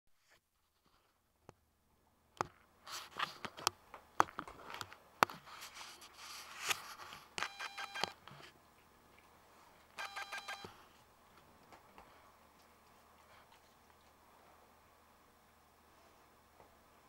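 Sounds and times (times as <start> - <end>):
rapid pitched beeps: 10.0 - 10.7.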